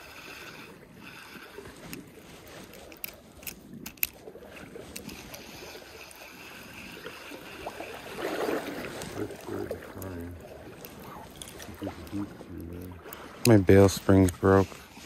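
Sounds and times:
fishing reel clicks: 0:00.0 - 0:08.0
fishing reel cranking: 0:00.0 - 0:12.1
creek trickling: 0:00.0 - 0:15.0.

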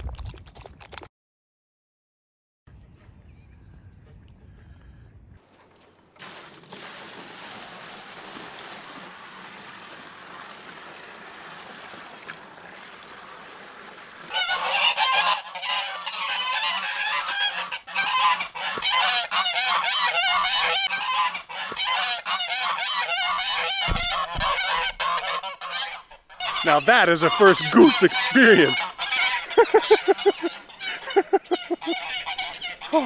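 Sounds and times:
geese honking: 0:14.3 - 0:33.0.

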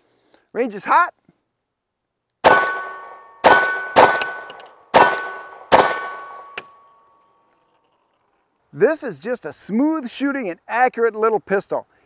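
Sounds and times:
pistol shots: 0:02.4 - 0:06.6
metallic ring of steel target: 0:02.4 - 0:07.4.

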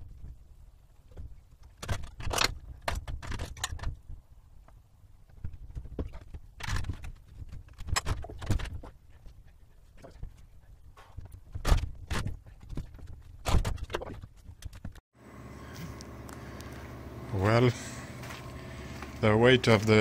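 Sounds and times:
footsteps on bus floor: 0:18.1 - 0:20.0.

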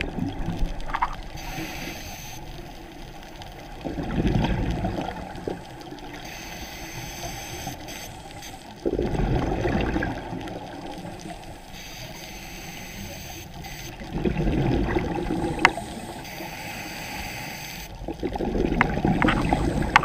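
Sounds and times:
exhaled bubbles gurgling: 0:00.0 - 0:01.9, 0:02.6 - 0:07.1, 0:08.6 - 0:11.6, 0:12.7 - 0:17.3, 0:17.9 - 0:20.0
regulator inhale hiss: 0:01.3 - 0:02.9, 0:06.2 - 0:08.8, 0:11.2 - 0:14.0, 0:15.3 - 0:18.0.

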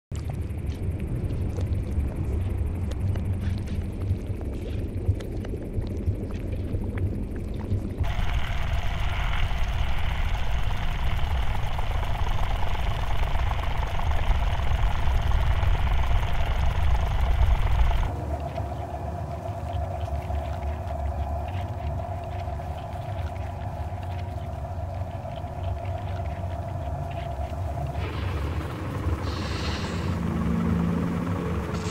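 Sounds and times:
low rumbling noise: 0:00.1 - 0:31.9
bright hiss: 0:28.0 - 0:30.2.

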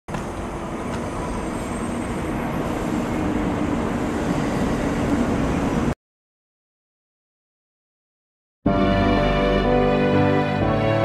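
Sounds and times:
train rushing past: 0:00.1 - 0:06.0.

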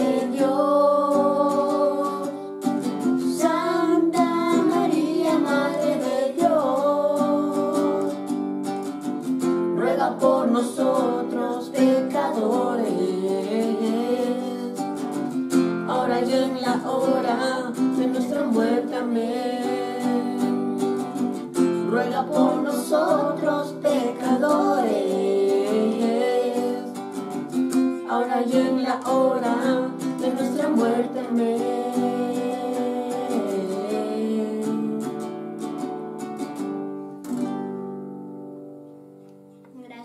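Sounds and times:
man and boys singing: 0:00.0 - 0:08.4, 0:09.7 - 0:35.5
acoustic guitar strumming: 0:00.0 - 0:40.0.

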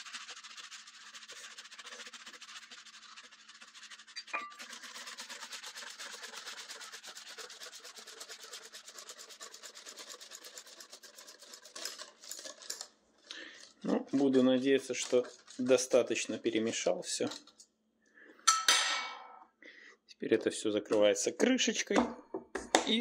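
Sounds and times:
fast rubbing rasp: 0:00.0 - 0:12.8, 0:13.7 - 0:16.5
whisk scraping a cup: 0:00.0 - 0:17.6
metal cup clinking down: 0:04.4 - 0:04.6.

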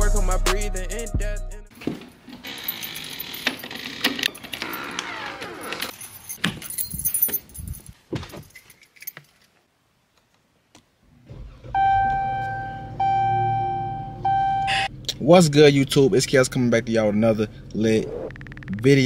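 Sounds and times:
car keys jangling: 0:02.5 - 0:09.6
car engine starting: 0:11.2 - 0:19.0.

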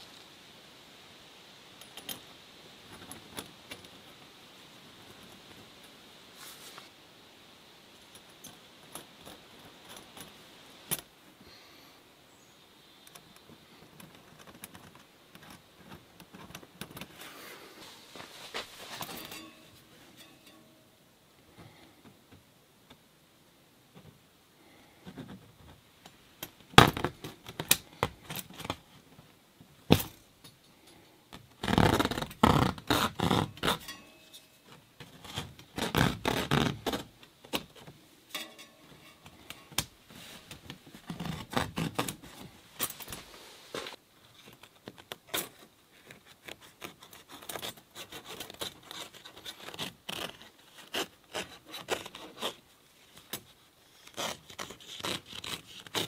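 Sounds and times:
knife cutting through canvas: 0:54.0 - 0:56.0.

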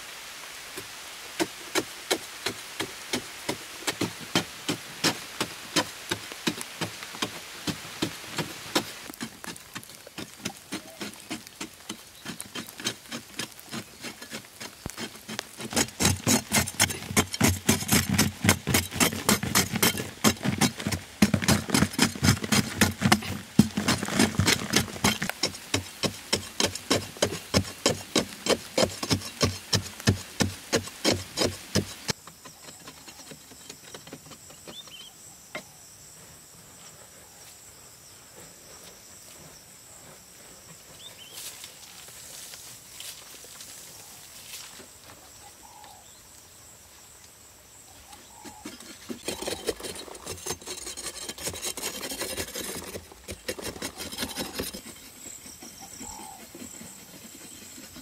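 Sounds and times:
hand tool chipping hard earth: 0:01.4 - 0:35.0, 0:48.2 - 0:58.0
faint insect hum: 0:32.1 - 0:52.7.

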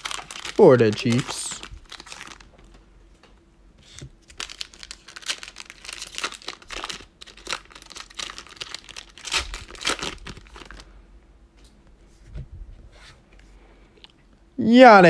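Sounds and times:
foil wrapper crinkling: 0:00.0 - 0:02.8, 0:03.9 - 0:10.9.

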